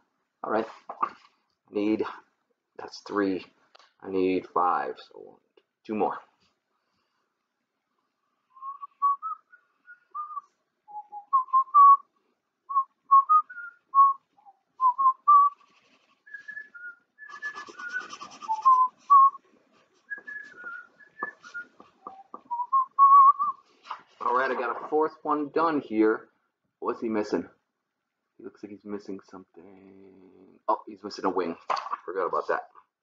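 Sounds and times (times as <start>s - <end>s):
man whistling a tune: 8.6s - 12.1s, 12.7s - 15.6s, 16.3s - 19.4s, 20.1s - 23.6s
marker scratching and tapping paper: 17.3s - 18.8s.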